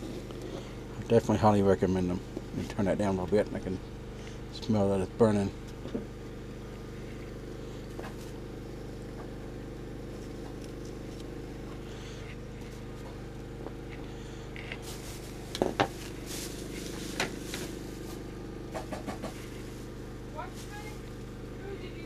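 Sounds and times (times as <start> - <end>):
generator engine humming: 0.0 - 22.0
sharp clicks and knocks: 18.7 - 19.4.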